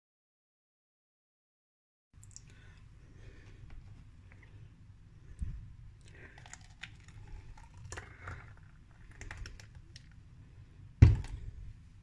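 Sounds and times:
small clicks and splatters: 0:02.2 - 0:02.5, 0:06.0 - 0:10.2
thick liquid pouring: 0:06.0 - 0:10.2.

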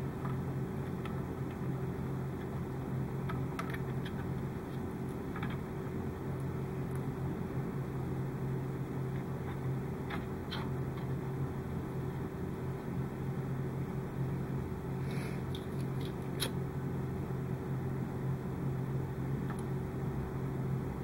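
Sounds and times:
wires being twisted by hand: 0:00.0 - 0:07.5, 0:08.1 - 0:13.0, 0:15.4 - 0:16.6
low background hum: 0:00.0 - 0:21.0.

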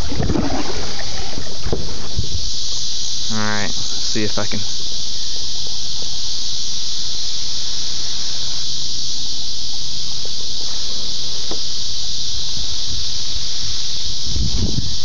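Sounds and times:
kayak paddle sloshing water: 0:00.0 - 0:02.4
insect chorus: 0:00.0 - 0:15.0.

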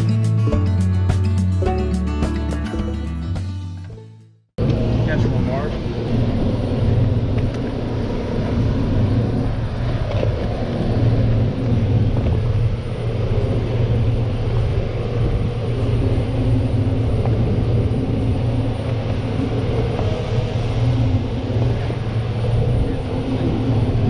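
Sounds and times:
boat engine humming: 0:00.0 - 0:24.0
water noise: 0:04.6 - 0:24.0
wind: 0:04.6 - 0:24.0.

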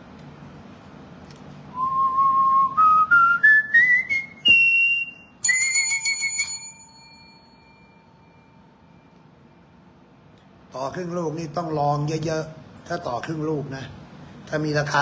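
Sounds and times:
bright ringing chime: 0:05.4 - 0:09.1.

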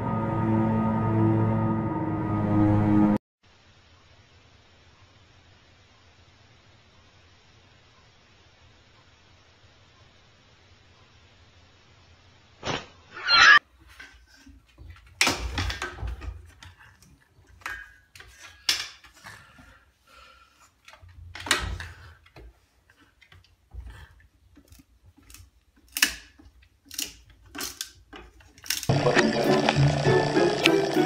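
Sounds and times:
music: 0:00.0 - 0:03.2, 0:28.9 - 0:31.0.

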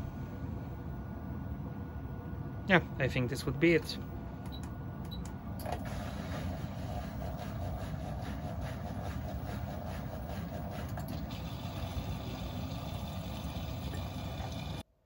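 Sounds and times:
washing machine filling with water: 0:05.7 - 0:14.9.

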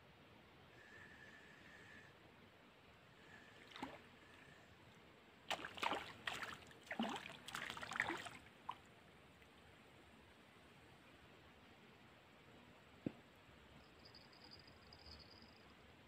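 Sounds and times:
fish splashing in water: 0:05.5 - 0:08.8.

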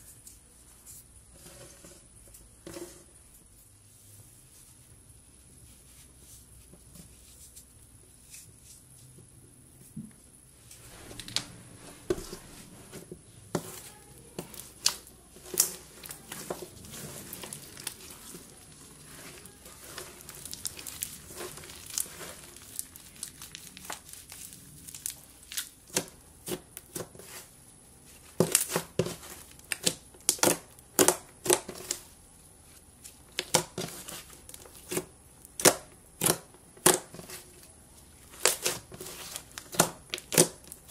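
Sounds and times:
slime crackling and popping: 0:14.3 - 0:27.1, 0:28.4 - 0:32.1, 0:33.3 - 0:40.9.

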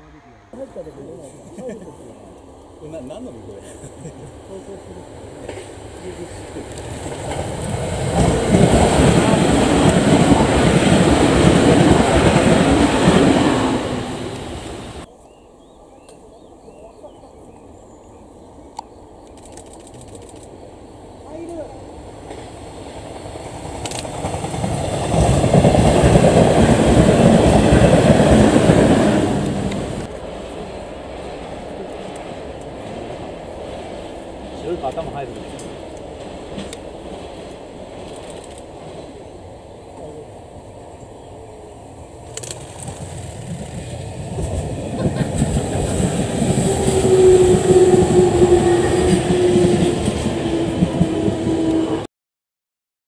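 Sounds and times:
electric train passing: 0:00.0 - 0:15.8, 0:16.4 - 0:52.1
train wheels clattering on rails: 0:22.1 - 0:30.1, 0:31.8 - 0:39.2, 0:42.2 - 0:52.0
train motor whine: 0:45.8 - 0:52.0.

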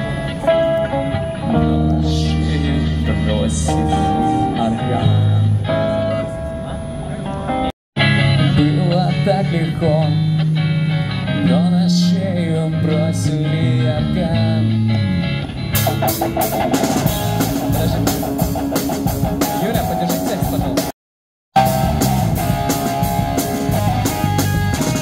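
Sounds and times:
bass guitar low notes: 0:00.0 - 0:20.9, 0:21.6 - 0:25.0
electric guitar melody: 0:00.0 - 0:20.9, 0:21.6 - 0:25.0
drum kit beat with cymbals: 0:15.8 - 0:20.9, 0:21.6 - 0:25.0.

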